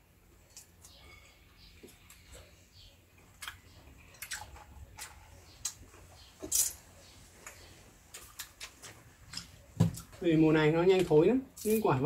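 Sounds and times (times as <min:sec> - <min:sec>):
fruit peeling and chewing: 0:00.3 - 0:10.2, 0:11.0 - 0:12.0.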